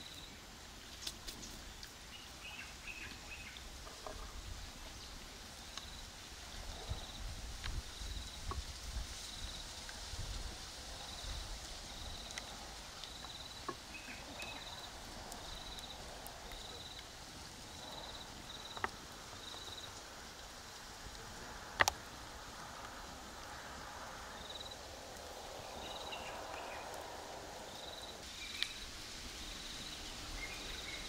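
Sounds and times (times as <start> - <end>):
faint clicks: 11.6 - 17.1, 21.1 - 22.0.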